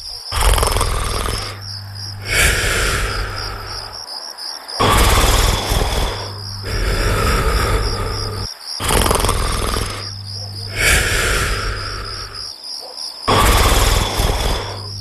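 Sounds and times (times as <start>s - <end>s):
person snoring loudly: 0.0s - 4.1s, 4.8s - 12.5s, 13.3s - 15.0s
crickets chirping: 0.0s - 15.0s.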